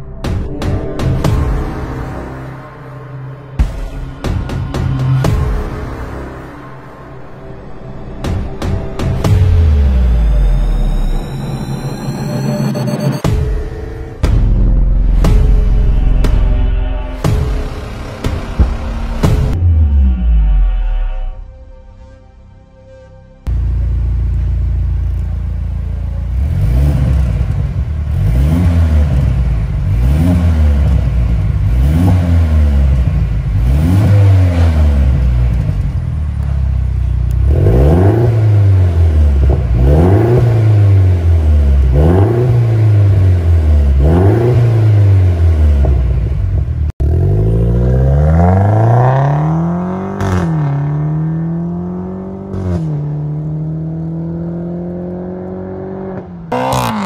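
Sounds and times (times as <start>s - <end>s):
car engine revving: 23.4s - 57.0s
car accelerating hard with upshifts: 47.0s - 57.0s.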